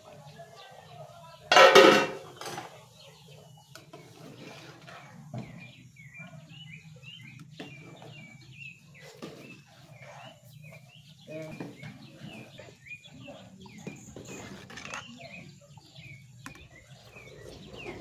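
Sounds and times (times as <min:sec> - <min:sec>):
metal pot lid clattering: 0:01.5 - 0:02.6
birds chirping: 0:02.1 - 0:18.0.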